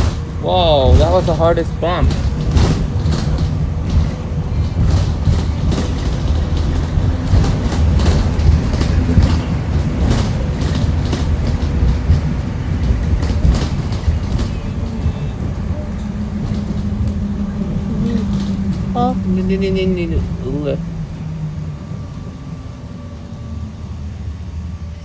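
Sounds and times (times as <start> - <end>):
rattles of bus body and windows: 0.0 - 24.9
bus engine and road rumble: 0.0 - 25.0.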